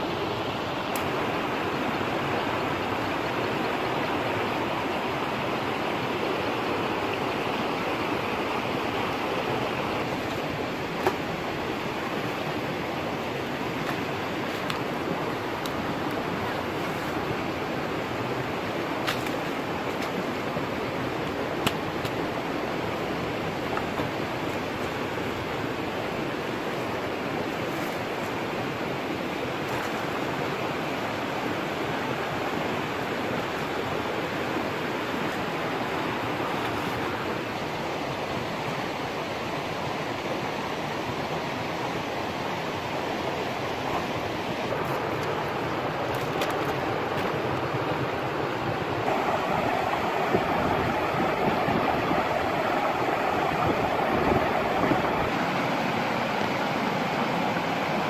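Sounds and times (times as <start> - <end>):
stream rushing over rapids: 0.0 - 58.0.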